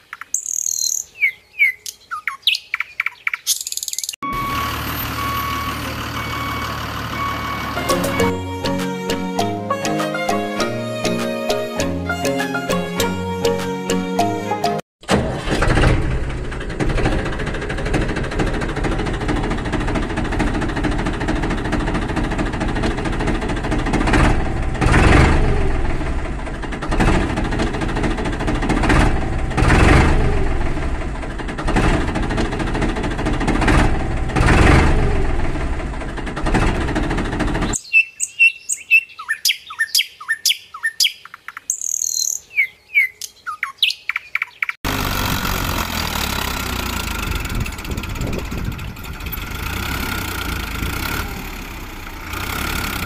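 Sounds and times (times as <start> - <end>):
birds chirping: 0.0 - 4.2, 37.6 - 44.8
tractor engine surging: 4.2 - 37.8, 44.8 - 53.0.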